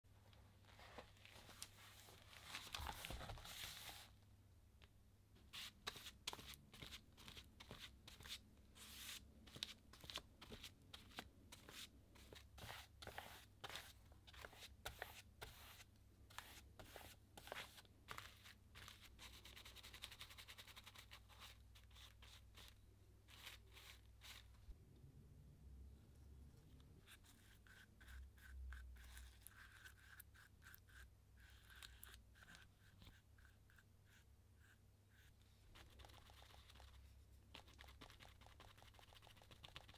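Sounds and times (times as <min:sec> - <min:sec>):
paintbrush scratching on paper: 0:11.0 - 0:24.5, 0:27.0 - 0:39.9.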